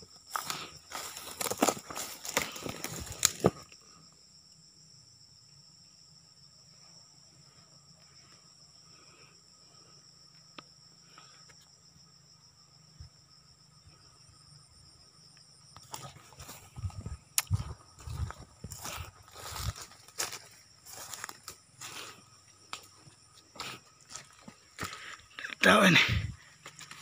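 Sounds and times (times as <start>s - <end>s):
high-pitched insect chorus: 0.0s - 27.0s
footsteps crunching through dry grass: 0.3s - 3.6s, 15.8s - 27.0s.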